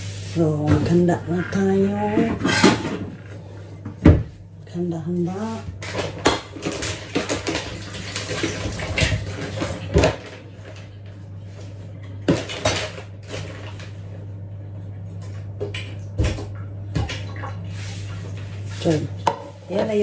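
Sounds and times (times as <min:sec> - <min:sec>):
steady low hum: 0:00.0 - 0:20.0
pots and pans clattering: 0:00.6 - 0:03.4, 0:05.8 - 0:10.8.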